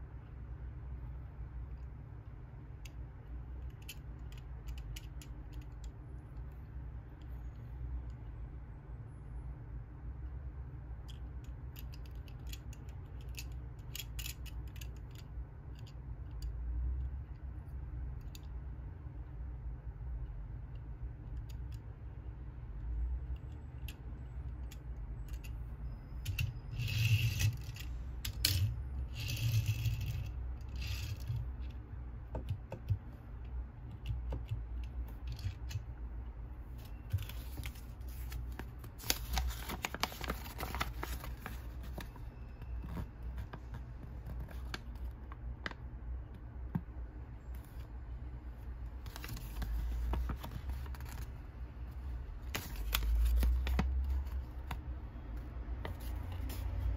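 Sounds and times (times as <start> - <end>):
steady low hum: 0.0 - 56.9
paper crinkling: 36.8 - 42.2.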